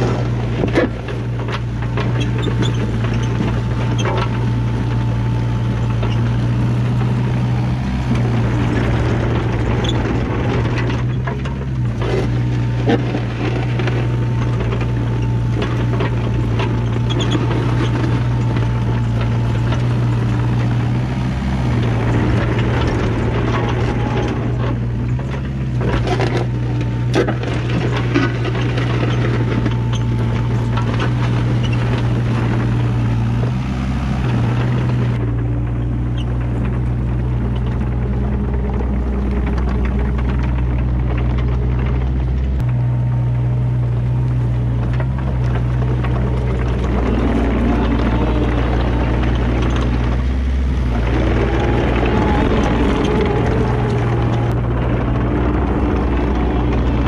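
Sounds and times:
blade scraping dirt and gravel: 0.0 - 42.7, 43.9 - 57.0
diesel engine under load: 0.0 - 57.0.

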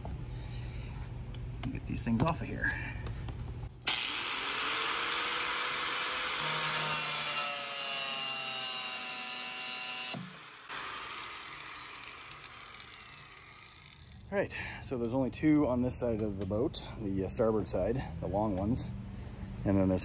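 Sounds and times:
angle grinder cutting wire: 3.9 - 14.3.

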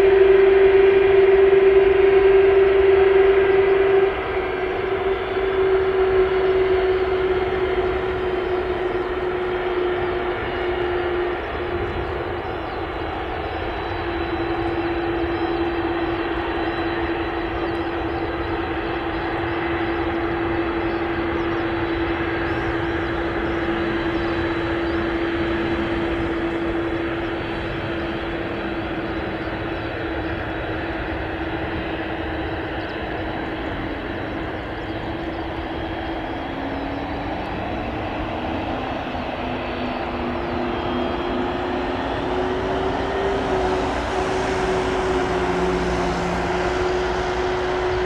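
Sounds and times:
jet engines whining: 0.0 - 48.0
low rising tone: 37.2 - 48.0.

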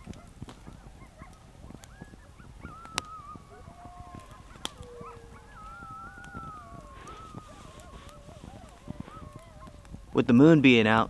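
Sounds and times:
coyotes howling and yipping: 0.0 - 11.0.

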